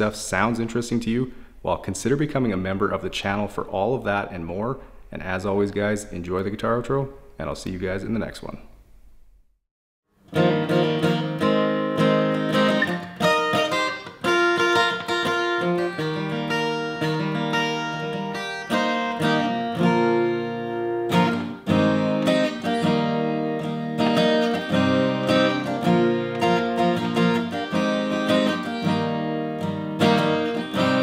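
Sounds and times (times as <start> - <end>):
acoustic guitar strumming and picking: 10.2 - 31.0.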